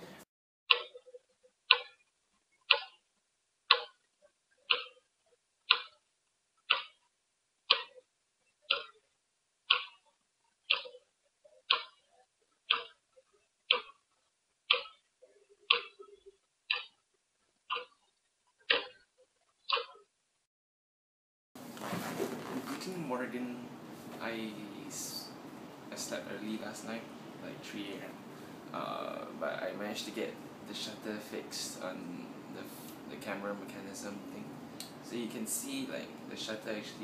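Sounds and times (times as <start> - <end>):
clock ticking: 0.7 - 2.0, 2.7 - 3.0, 3.7 - 4.0, 4.7 - 5.1, 5.7 - 7.1, 7.7 - 9.0, 9.7 - 13.0, 13.7 - 14.0, 14.7 - 17.0, 17.7 - 18.1, 18.7 - 20.1.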